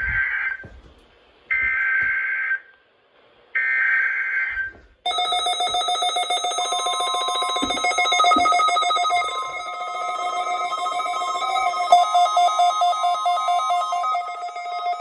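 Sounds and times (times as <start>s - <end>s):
electronic alarm beeps: 3.6s - 15.0s
warbling data tones: 5.1s - 15.0s.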